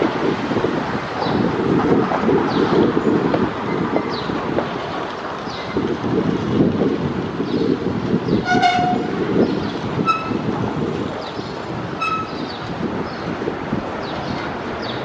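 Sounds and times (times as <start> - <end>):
jet engines rumbling: 0.0 - 15.0
short horn-like tone: 8.5 - 9.1, 10.1 - 10.4, 12.0 - 12.4.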